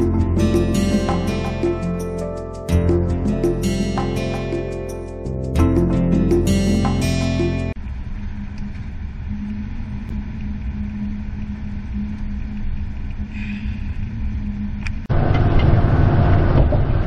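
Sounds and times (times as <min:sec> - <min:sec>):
van engine and road drone: 0:00.0 - 0:17.0.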